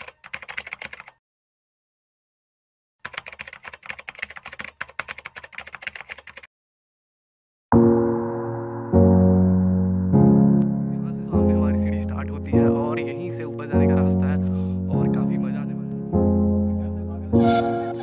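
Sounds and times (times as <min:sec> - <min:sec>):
rapid keyboard typing clicks: 0:00.0 - 0:01.2, 0:03.0 - 0:06.5
sustained piano chord: 0:07.7 - 0:12.4.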